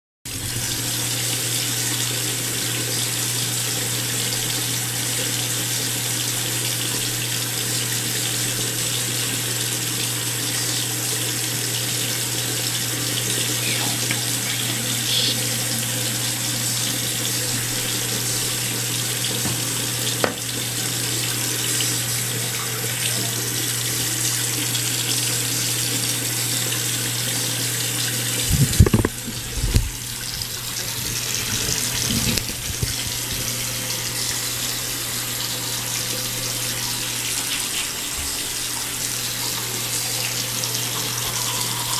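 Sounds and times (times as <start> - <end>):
tap running into sink: 16.8 - 20.7, 28.4 - 33.6.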